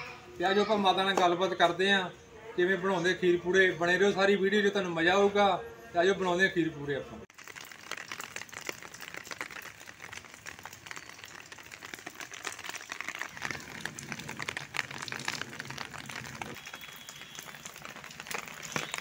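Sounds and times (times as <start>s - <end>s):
rain dripping on concrete: 7.3s - 19.0s.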